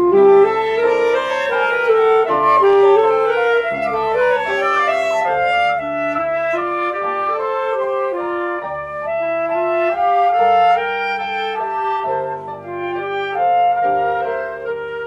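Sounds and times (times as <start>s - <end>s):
lower held notes: 0.0s - 9.2s
wind instruments: 0.0s - 15.0s.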